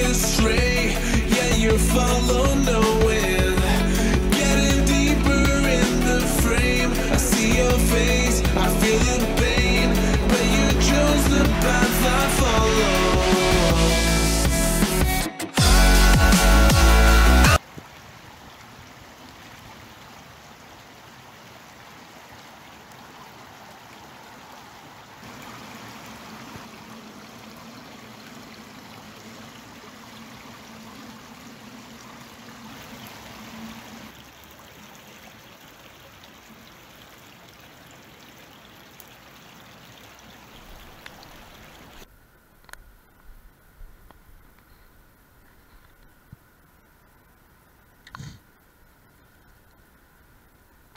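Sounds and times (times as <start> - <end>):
water running from pipe: 0.0 - 17.6, 25.2 - 42.1
rain falling on lake: 0.0 - 50.9.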